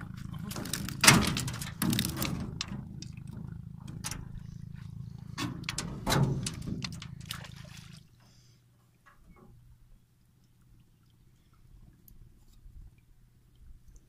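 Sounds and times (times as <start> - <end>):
steady low rumble: 0.0 - 8.0
faint water dripping: 0.0 - 14.0
water splashing off a fish trap: 0.4 - 3.4, 5.4 - 8.2
knocks against a boat: 5.4 - 7.5.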